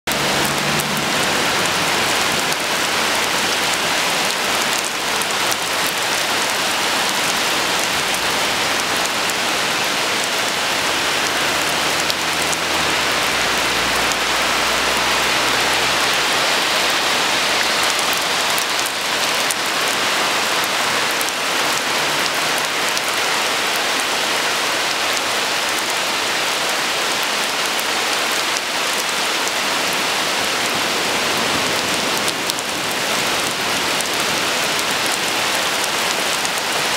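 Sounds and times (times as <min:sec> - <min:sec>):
heavy rain on concrete and leaves: 0:00.0 - 0:36.9.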